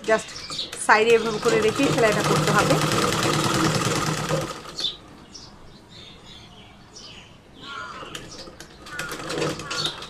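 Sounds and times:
sewing machine stitching: 0.4s - 5.0s, 8.8s - 10.0s.

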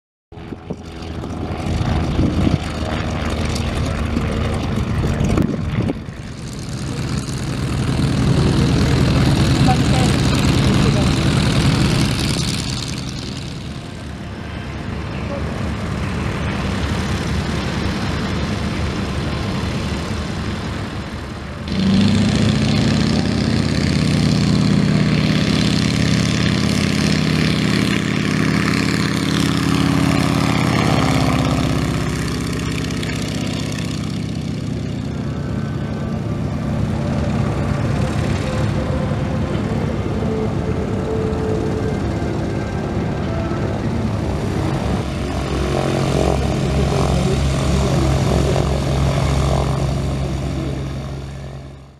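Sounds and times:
biplane engine and propeller: 0.3s - 51.9s.

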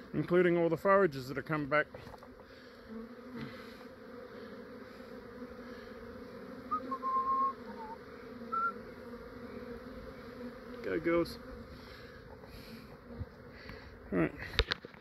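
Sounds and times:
bee swarm humming: 0.0s - 15.0s
short whistled notes: 6.7s - 8.8s.

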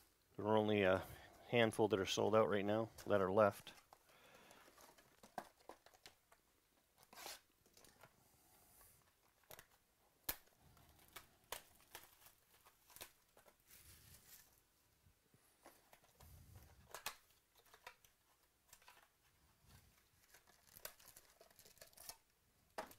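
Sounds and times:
pack wrappers tearing and crinkling: 9.2s - 14.5s, 19.9s - 22.3s.

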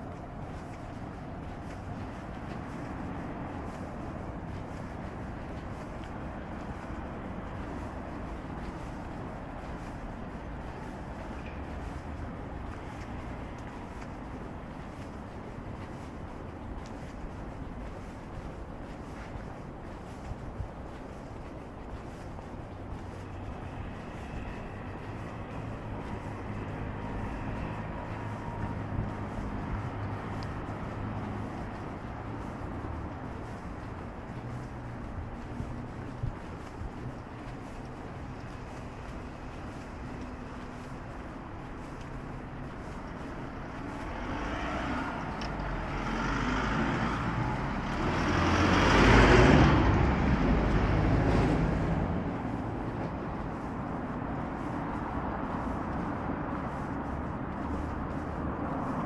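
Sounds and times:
road traffic rumble: 0.0s - 59.0s
vehicle passing close by: 23.0s - 41.2s, 42.6s - 59.0s.

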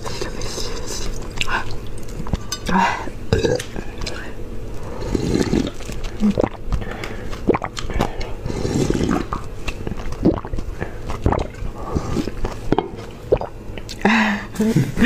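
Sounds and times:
slurping broth: 4.8s - 13.6s
gulping: 5.2s - 6.7s, 8.5s - 13.6s.

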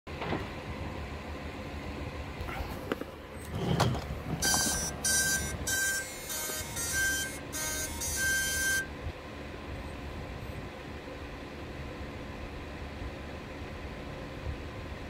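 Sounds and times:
short high buzzy beeps: 4.4s - 8.9s.

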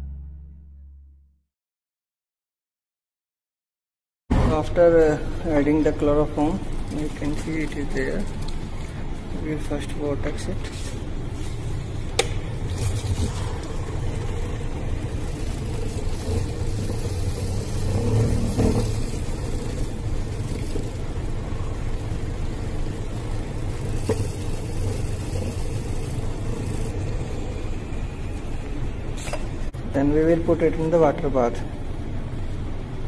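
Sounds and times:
vortex mixer motor humming: 10.9s - 29.7s.

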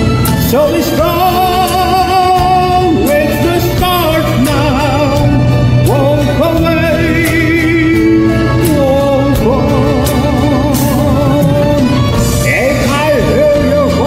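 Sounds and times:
karaoke backing track: 0.0s - 14.0s
person singing with vibrato: 0.0s - 14.0s.

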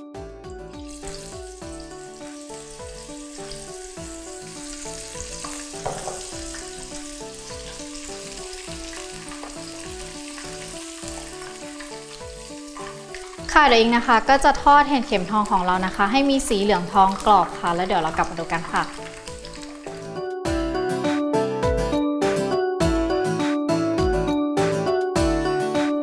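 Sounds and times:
background music: 0.0s - 26.0s
food sizzling in hot oil: 0.8s - 20.3s.

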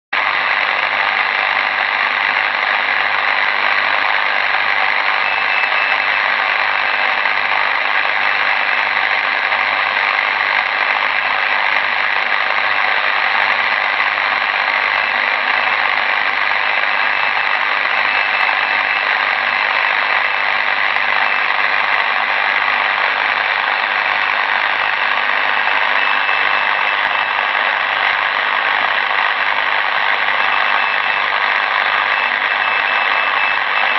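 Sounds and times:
radio static hiss: 0.2s - 33.9s
faint high whistle: 5.1s - 6.3s, 32.0s - 33.9s.

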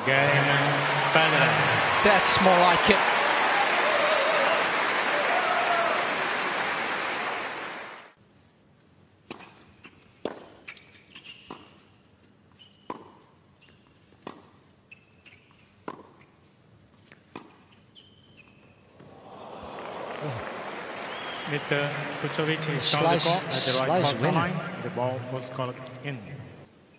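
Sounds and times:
crowd applause: 0.0s - 8.1s, 19.0s - 25.1s
tennis ball bounces: 10.2s - 10.6s, 15.8s - 16.3s
shoe squeaks: 10.6s - 11.9s, 12.5s - 14.2s, 14.8s - 16.3s, 17.6s - 19.0s.

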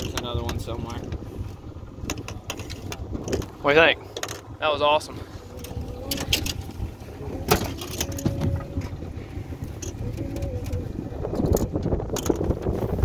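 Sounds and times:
steady low rumble: 0.0s - 13.0s
hooks clicking and knocking: 9.8s - 10.8s, 11.4s - 12.5s.

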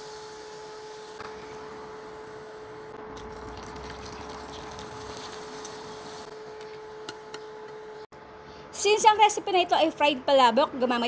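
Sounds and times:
chips sizzling in hot oil: 3.2s - 6.3s.

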